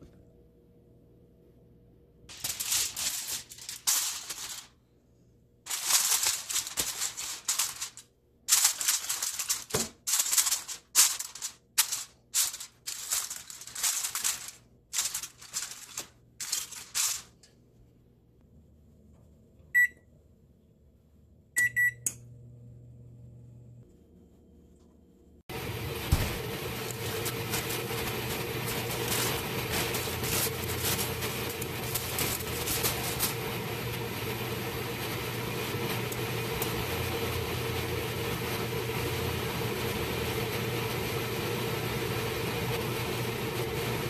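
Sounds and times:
aluminium foil crinkling: 2.3 - 4.8, 5.7 - 17.6, 25.9 - 37.2
oven control panel beeps: 19.7 - 20.1, 21.6 - 22.2.

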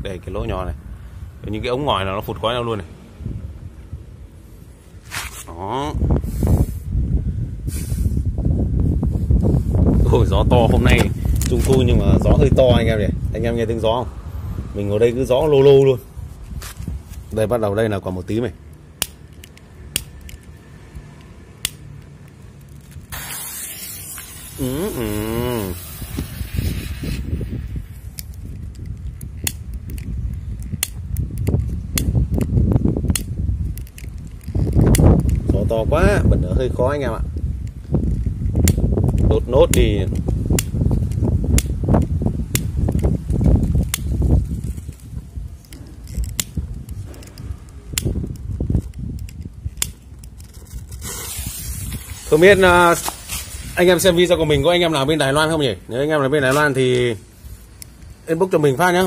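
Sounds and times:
wind buffeting microphone: 0.0 - 5.1, 5.8 - 17.6, 25.6 - 57.3
smoke ball hissing: 6.2 - 7.0, 7.6 - 8.4, 23.1 - 28.2, 50.7 - 54.3.

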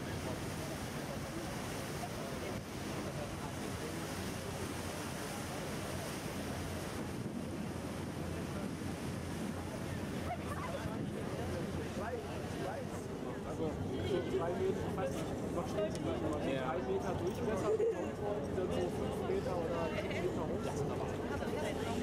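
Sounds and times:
wind on microphone: 0.0 - 12.9
water washing along hull: 0.0 - 22.0.

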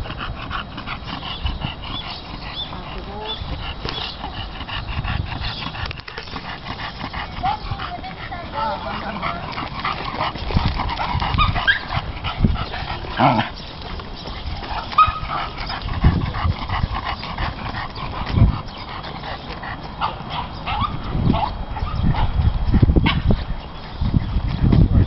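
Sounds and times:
dogs whining and yipping: 0.0 - 25.0.

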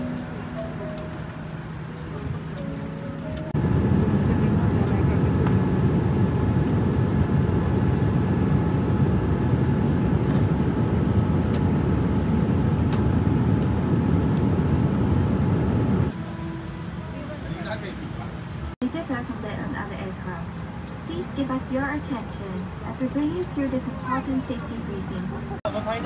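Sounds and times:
airliner cabin rumble: 0.0 - 16.2.

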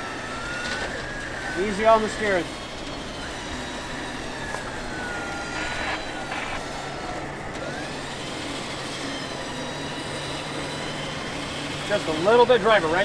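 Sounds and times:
engine hum: 0.0 - 13.0
winch whining: 0.0 - 13.0
short bursts of noise: 5.4 - 6.7.

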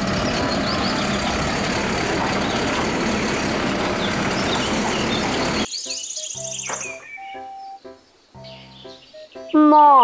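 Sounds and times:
diesel engine running: 0.0 - 5.7
hydraulic arm lifting cart: 0.0 - 5.7.

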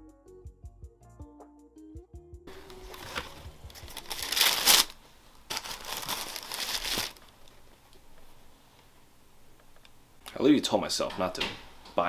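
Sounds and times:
tissue paper crinkling: 2.5 - 7.5.

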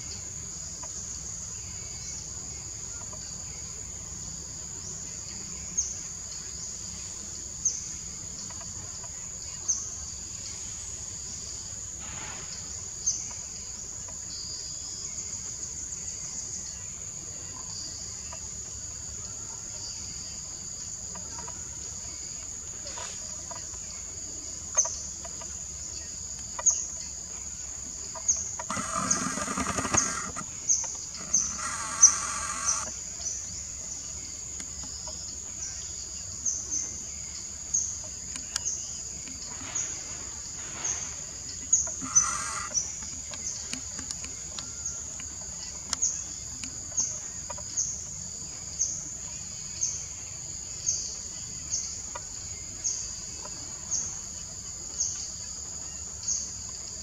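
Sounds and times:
high-pitched insect chorus: 0.0 - 57.0
sharp insect chirp: 0.0 - 57.0
short animal calls: 31.2 - 32.9, 41.8 - 42.9.

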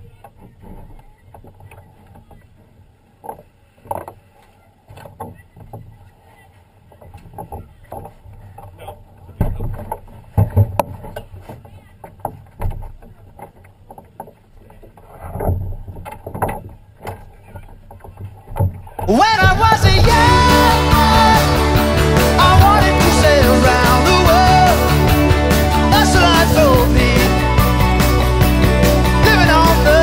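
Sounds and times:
low rumbling and thumping: 18.6 - 30.0.

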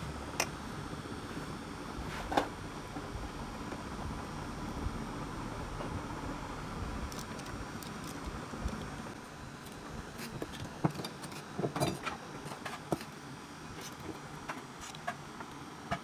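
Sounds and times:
small clicks and scrapes: 9.6 - 13.2, 13.8 - 16.0.

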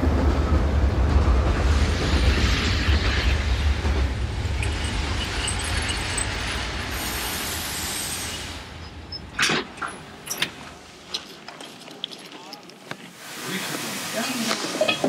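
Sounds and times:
electric train rumbling past: 0.0 - 11.0
high hiss: 1.8 - 9.1, 13.1 - 15.0.

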